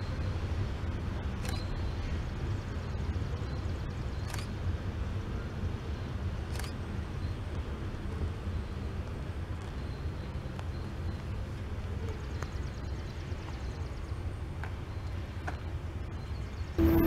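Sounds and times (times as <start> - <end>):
freight train rumbling by: 0.0 - 12.2, 16.7 - 17.0.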